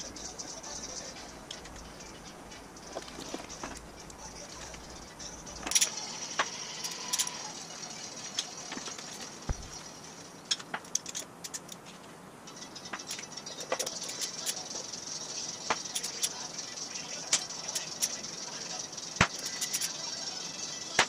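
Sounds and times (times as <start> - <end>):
ratchet and wrench clicking: 2.8 - 7.5, 10.5 - 11.8, 12.5 - 21.0.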